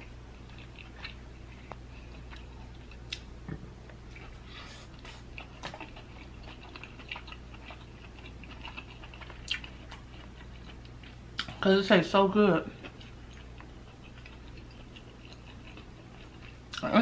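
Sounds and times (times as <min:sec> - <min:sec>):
soft chewing: 0:00.0 - 0:11.8, 0:12.4 - 0:17.0.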